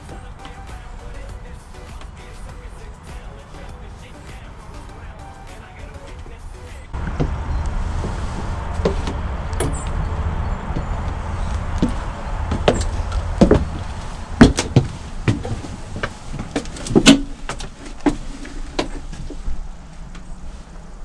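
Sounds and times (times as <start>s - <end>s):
footsteps on metal stairs: 0.0s - 4.4s, 7.0s - 20.2s
low rumble: 6.3s - 16.4s.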